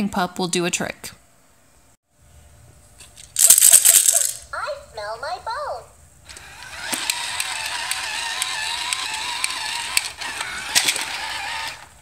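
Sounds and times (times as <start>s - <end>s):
plastic gear clicks: 6.3s - 11.9s
toy motor whirring: 6.3s - 12.0s.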